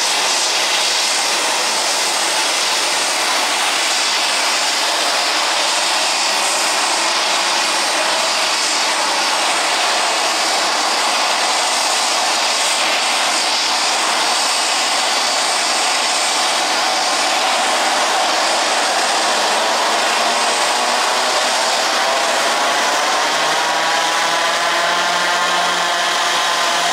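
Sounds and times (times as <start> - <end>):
turboprop engines running: 0.0 - 26.9.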